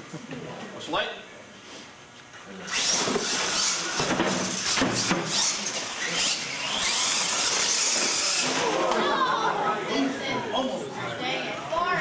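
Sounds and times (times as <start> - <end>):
toy truck motors whining: 2.6 - 9.2.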